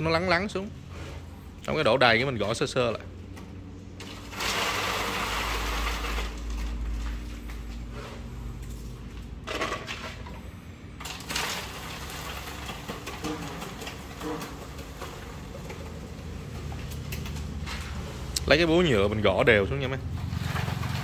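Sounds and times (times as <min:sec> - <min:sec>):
wet concrete pouring into mould: 0:04.0 - 0:07.3, 0:11.0 - 0:18.4, 0:20.2 - 0:21.0.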